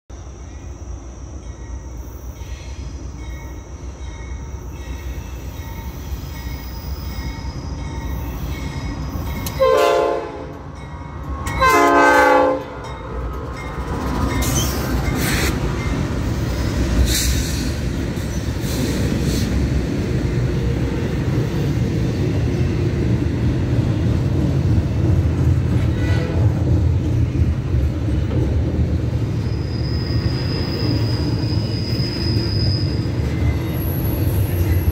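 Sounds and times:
diesel locomotives passing: 0:00.1 - 0:34.9
freight train rumble: 0:00.1 - 0:34.9
train air horn blasts: 0:09.6 - 0:10.6, 0:11.6 - 0:12.8, 0:25.9 - 0:26.6.

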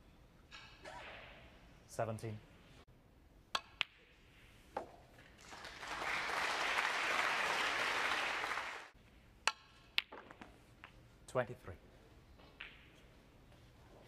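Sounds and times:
audience applauding: 0:05.4 - 0:08.9.

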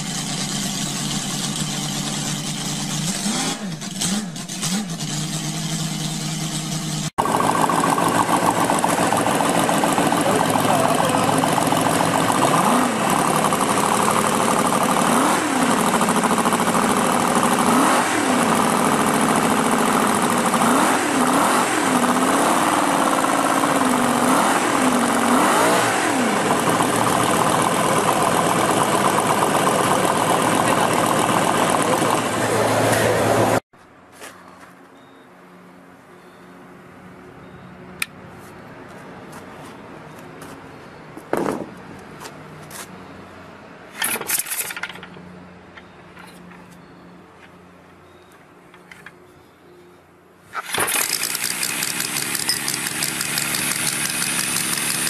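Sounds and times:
model engine revving: 0:00.0 - 0:33.6, 0:50.5 - 0:55.0
model engine running: 0:00.0 - 0:33.6, 0:50.6 - 0:55.0.

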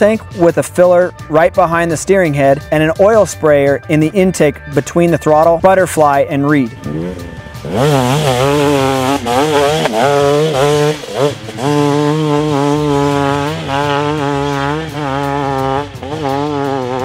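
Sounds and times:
background music: 0:00.0 - 0:17.0
dirt bike engine revving: 0:06.7 - 0:17.0.

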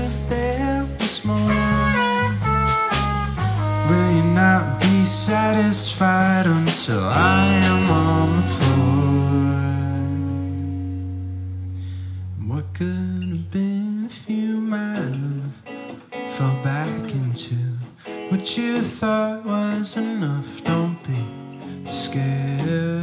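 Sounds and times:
person singing: 0:00.0 - 0:02.4, 0:03.6 - 0:11.1, 0:12.4 - 0:23.0
live band playing: 0:00.0 - 0:12.2
electric guitar chords: 0:00.0 - 0:23.0.

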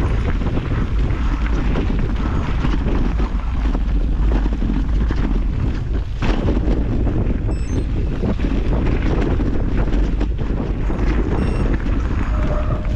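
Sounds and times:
mountain bike rattling on rough trail: 0:00.0 - 0:12.9
wind buffeting microphone: 0:00.0 - 0:12.9.

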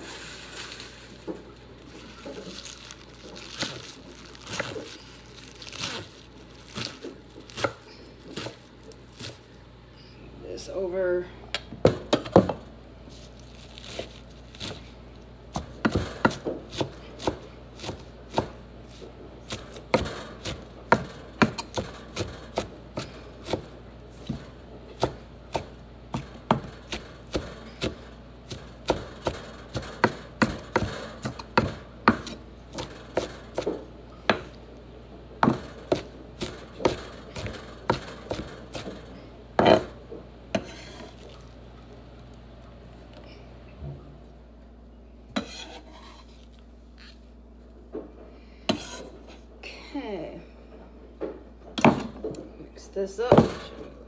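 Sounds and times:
knife chopping on wooden board: 0:15.6 - 0:18.6, 0:19.5 - 0:34.5.

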